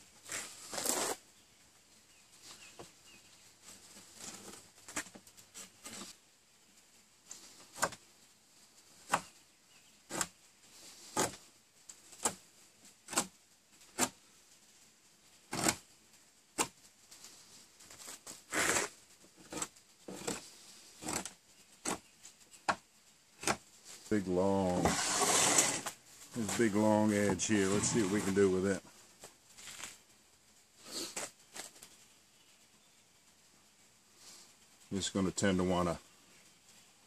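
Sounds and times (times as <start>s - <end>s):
knife whittling wood: 10.1s - 10.4s, 11.1s - 11.4s, 13.1s - 13.3s, 13.9s - 14.2s, 15.5s - 15.8s, 18.5s - 22.0s, 23.4s - 23.6s, 24.3s - 28.6s.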